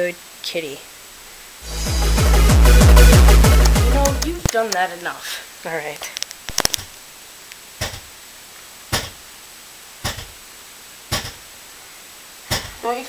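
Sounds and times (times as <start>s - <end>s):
faint hiss: 0.0s - 13.0s
sharp knocks: 10.0s - 10.4s, 11.1s - 11.4s, 12.5s - 12.8s.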